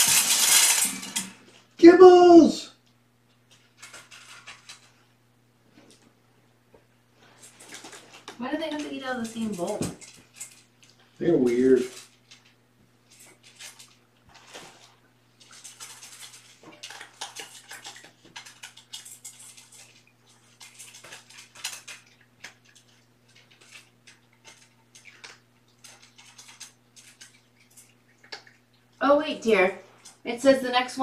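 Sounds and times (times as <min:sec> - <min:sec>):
low electrical hum: 0:00.0 - 0:31.0
kittens crunching kibble: 0:03.4 - 0:05.1, 0:07.2 - 0:29.0.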